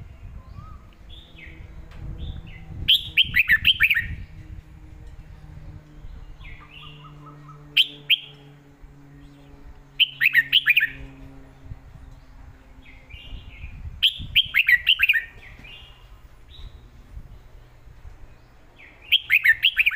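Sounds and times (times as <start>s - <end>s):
bird singing whistled notes: 0.3s - 1.6s, 2.3s - 4.4s, 6.0s - 8.5s, 10.0s - 11.2s, 12.9s - 16.9s, 18.8s - 19.9s.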